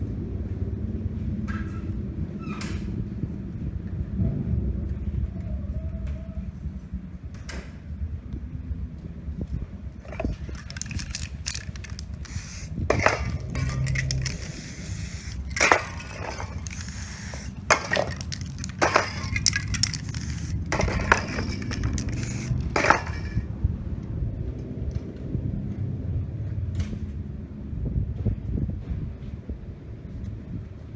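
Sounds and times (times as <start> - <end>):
metal cans clinking: 10.1 - 14.6, 15.4 - 23.4
aerosol spray can hissing: 11.8 - 13.2, 14.1 - 15.5, 16.4 - 17.7, 20.0 - 20.6, 22.0 - 22.6.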